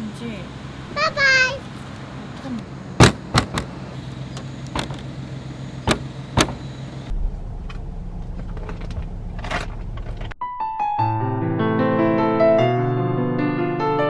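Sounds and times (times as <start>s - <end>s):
car engine idling: 0.0s - 10.4s
car tailgate clunks: 3.0s - 5.1s, 5.8s - 6.8s.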